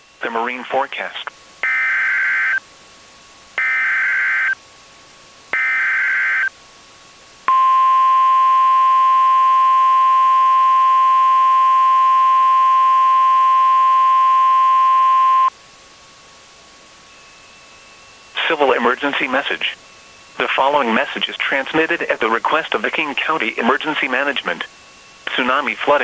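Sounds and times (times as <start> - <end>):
steady attention tone: 7.5 - 15.5.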